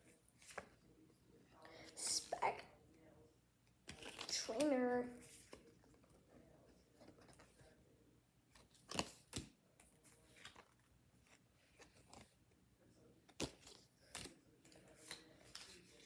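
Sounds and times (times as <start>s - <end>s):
cards clicking and rustling: 3.8s - 6.3s, 8.5s - 12.4s, 13.2s - 16.0s.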